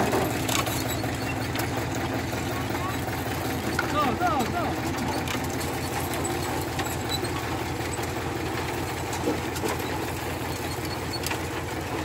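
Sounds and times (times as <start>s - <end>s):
engine drone: 0.0s - 12.0s.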